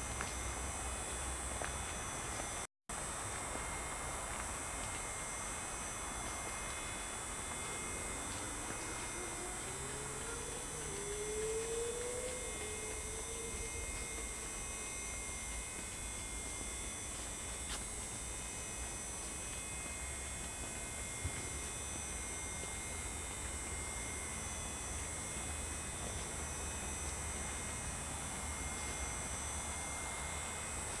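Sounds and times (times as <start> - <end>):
electrical hum and hiss: 0.0 - 31.0
faint rising tone: 5.6 - 16.5.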